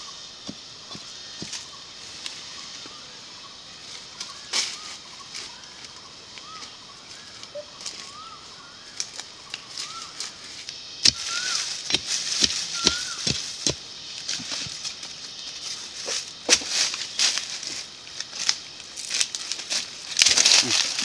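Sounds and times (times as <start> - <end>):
bird chirping: 0.0 - 16.6
stick digging in leaf litter: 11.0 - 21.0.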